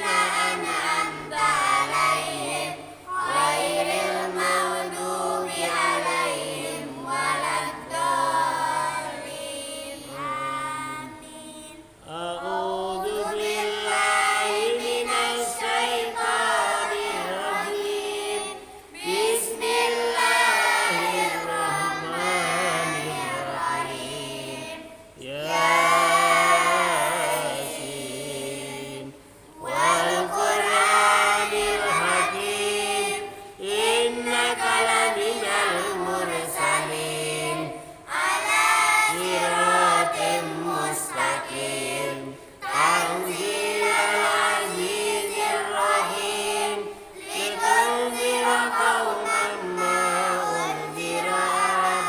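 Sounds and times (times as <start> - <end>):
girls chanting in unison: 0.0 - 11.8, 12.6 - 27.9, 28.5 - 52.0.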